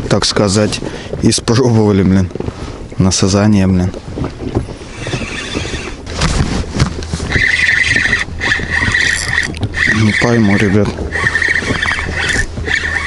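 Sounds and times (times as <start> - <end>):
fishing reel whirring: 4.9 - 6.0, 7.3 - 13.0.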